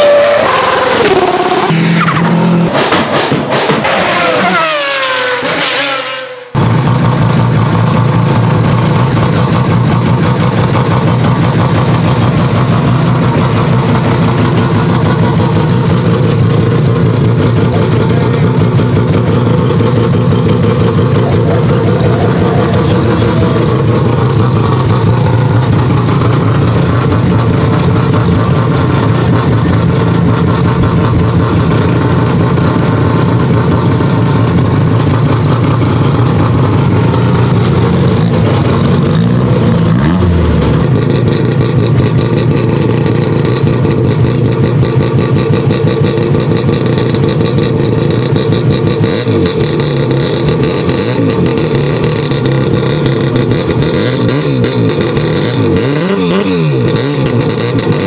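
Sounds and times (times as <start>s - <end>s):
rotary engine idling: 6.6s - 58.0s.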